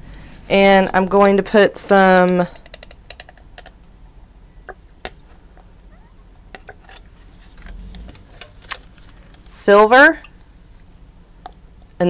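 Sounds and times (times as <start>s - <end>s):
plastic cups clicking: 2.3s - 3.8s.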